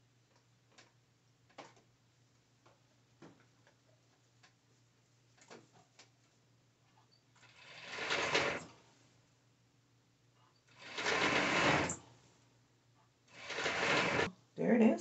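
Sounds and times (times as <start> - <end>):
sewing machine stitching: 7.4 - 8.8, 10.7 - 12.1, 13.3 - 14.3.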